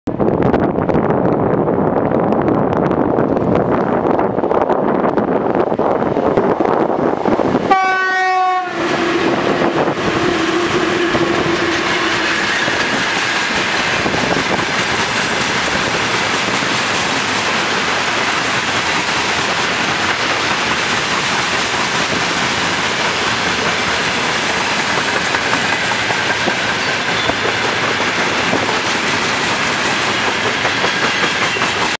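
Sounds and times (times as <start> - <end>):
train wheels on rails: 0.1 - 32.0
locomotive horn blast: 7.7 - 12.2.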